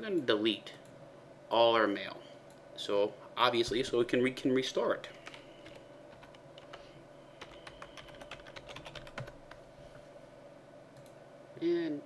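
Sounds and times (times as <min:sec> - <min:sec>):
computer keyboard typing: 0:05.1 - 0:06.8, 0:07.4 - 0:09.6.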